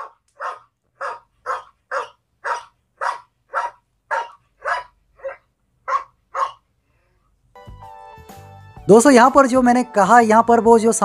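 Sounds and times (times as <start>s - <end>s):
recorded dog barks from phone: 0.0s - 6.6s.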